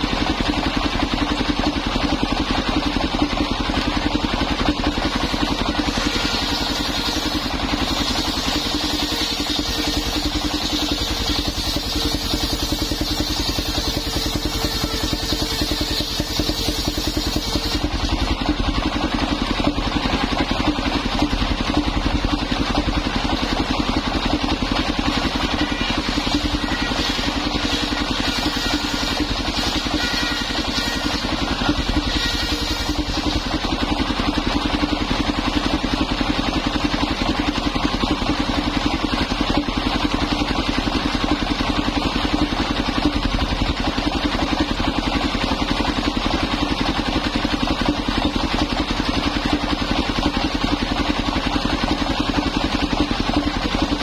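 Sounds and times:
sawmill engine running: 0.0s - 54.0s
saw blade cutting wood: 3.8s - 19.5s, 22.8s - 35.8s.

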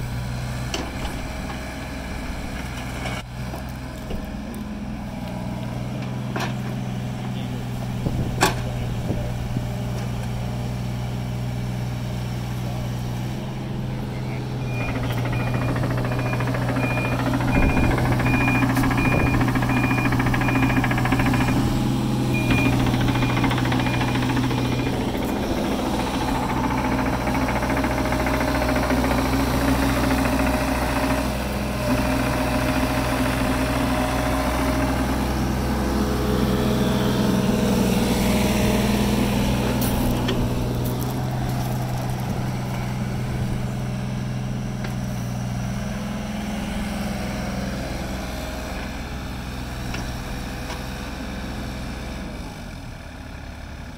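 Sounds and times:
excavator diesel engine running: 0.0s - 53.9s
high beeps: 22.4s - 24.2s.

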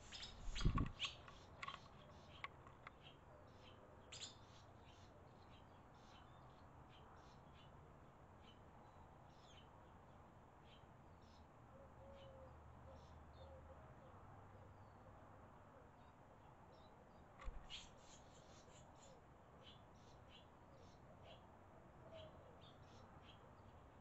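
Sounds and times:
swallows chirping: 0.0s - 6.5s.

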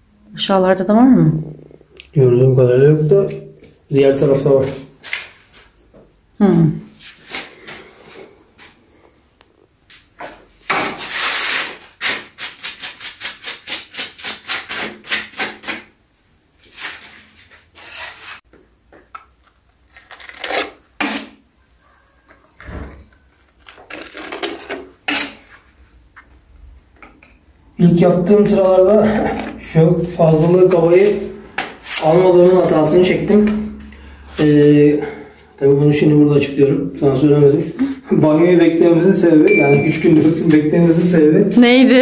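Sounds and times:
putty knife scraping wall: 10.6s - 15.9s, 16.6s - 18.4s, 20.1s - 21.4s, 23.8s - 25.6s.

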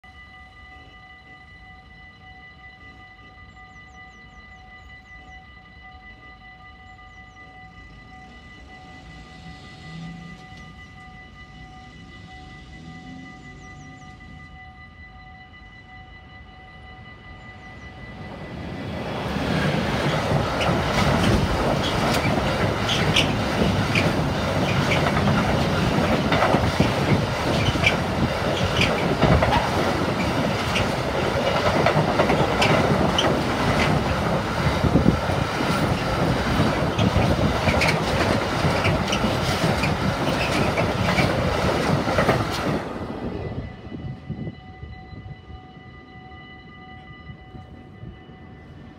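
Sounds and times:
train rumble: 0.1s - 48.9s
freight train wheels clattering: 18.2s - 43.4s.

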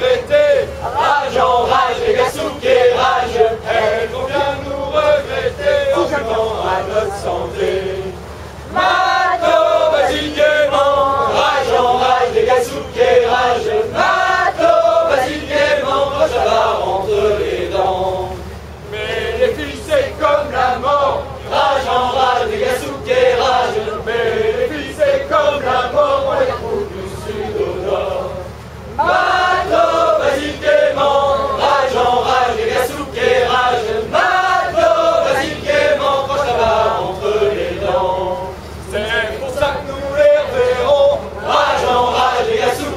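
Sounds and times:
crew singing a chant together: 0.0s - 42.9s.

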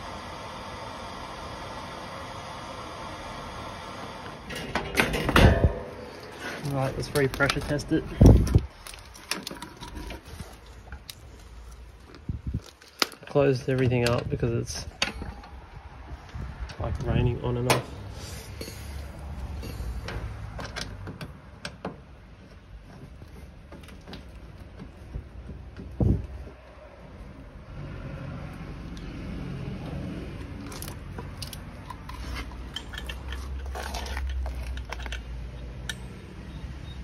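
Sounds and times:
loud thump: 5.0s - 6.0s
metallic clicks of hose fittings: 30.6s - 36.3s.

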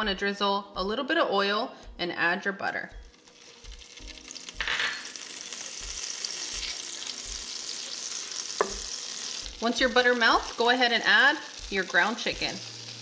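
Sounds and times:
butter and oil sizzling: 2.9s - 13.0s.

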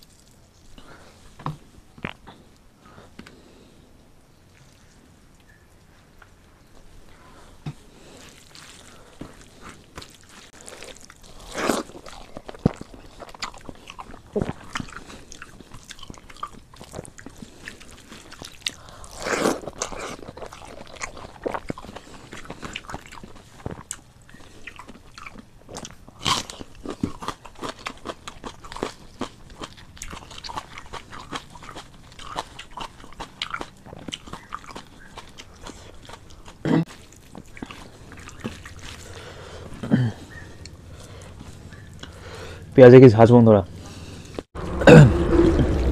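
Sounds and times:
person chewing with wet mouth sounds: 0.0s - 1.4s, 6.7s - 42.4s
crunching bites: 8.2s - 39.9s.

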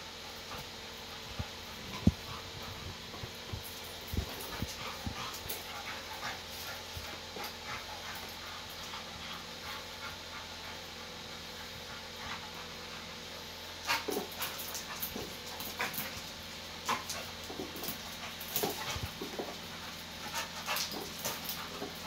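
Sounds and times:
dog panting hard: 0.4s - 22.0s.

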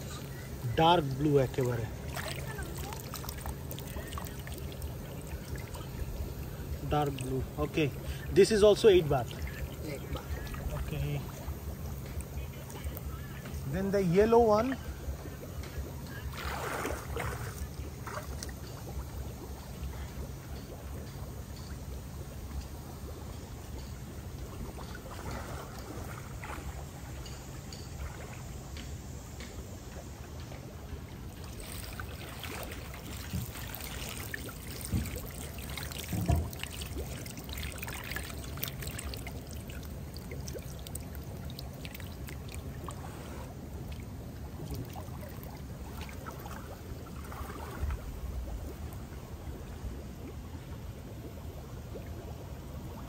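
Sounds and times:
water trickling in a pond: 0.0s - 53.0s
hand net splashing water: 2.0s - 5.8s, 16.3s - 18.8s, 31.4s - 43.2s.

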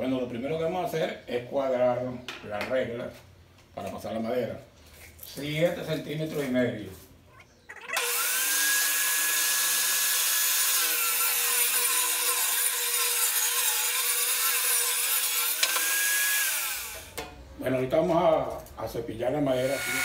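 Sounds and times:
table saw cutting a board: 8.0s - 17.2s, 19.6s - 20.0s.

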